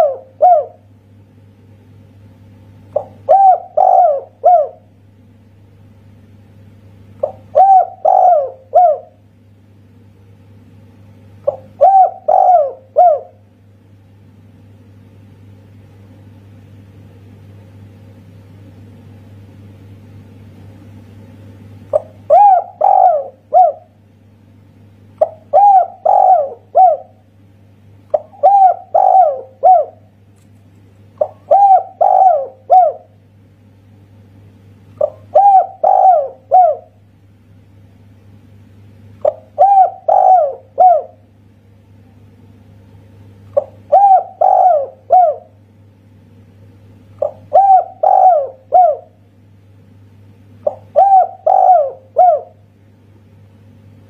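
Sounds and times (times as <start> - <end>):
dove cooing: 0.0 - 0.9, 2.9 - 4.9, 7.2 - 9.2, 11.4 - 13.4, 21.9 - 24.0, 25.2 - 27.3, 28.1 - 30.1, 31.2 - 33.2, 35.0 - 37.0, 39.2 - 41.3, 43.5 - 45.6, 47.2 - 49.2, 50.6 - 52.6
low steady hum: 0.0 - 54.0.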